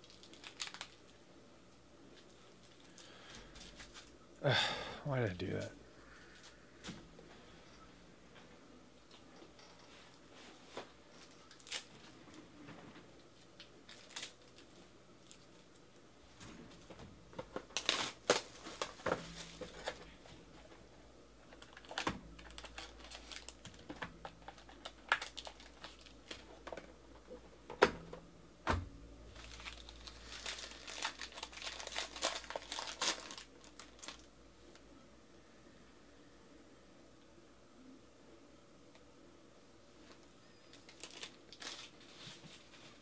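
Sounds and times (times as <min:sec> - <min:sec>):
crackles and clicks: 0:00.0 - 0:01.2, 0:21.4 - 0:27.4, 0:29.3 - 0:34.9
foil pack crinkling: 0:00.0 - 0:01.2, 0:02.2 - 0:04.1, 0:11.2 - 0:12.4, 0:13.6 - 0:15.8, 0:17.3 - 0:20.3, 0:21.4 - 0:26.9, 0:29.3 - 0:34.3, 0:40.7 - 0:42.8.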